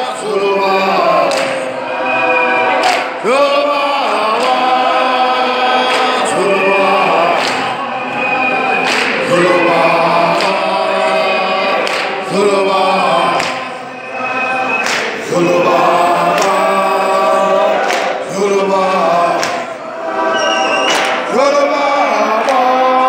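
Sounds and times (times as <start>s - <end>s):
crowd singing a cappella: 0.0s - 23.0s.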